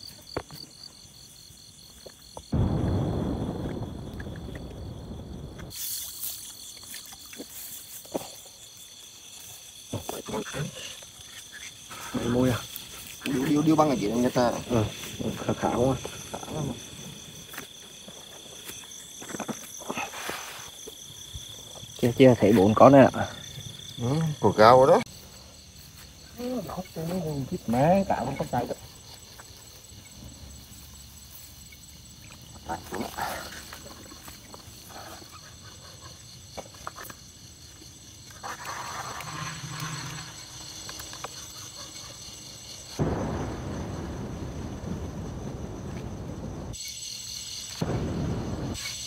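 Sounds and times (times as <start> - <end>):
crickets chirring: 0.0 - 49.0.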